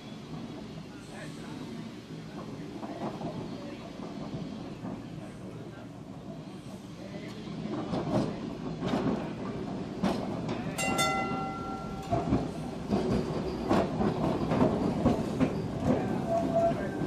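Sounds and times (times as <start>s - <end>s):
tram wheels rumbling on rails: 0.0s - 17.0s
tram gong clang: 10.8s - 12.4s.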